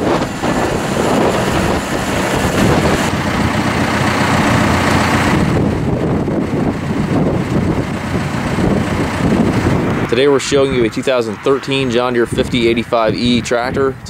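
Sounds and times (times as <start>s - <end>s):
tractor diesel engine running: 0.0s - 14.0s.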